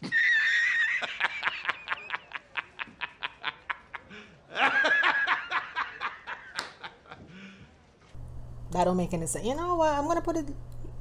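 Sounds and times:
man laughing: 0.0 - 7.4.

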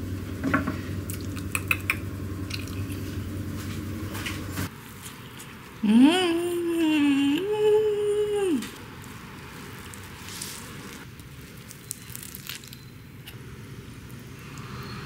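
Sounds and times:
eating sounds: 1.0 - 3.2
woman humming: 5.8 - 8.8.

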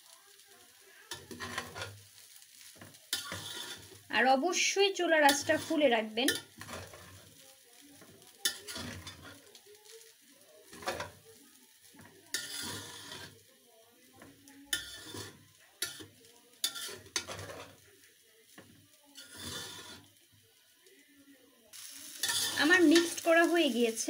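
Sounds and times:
faint frying sizzle: 0.0 - 24.0
metal spoon scraping metal pan: 1.1 - 2.0, 3.1 - 4.0, 5.2 - 7.2, 8.4 - 9.4, 10.7 - 11.2, 12.0 - 13.4, 14.2 - 17.8, 19.2 - 20.1, 22.2 - 23.2.

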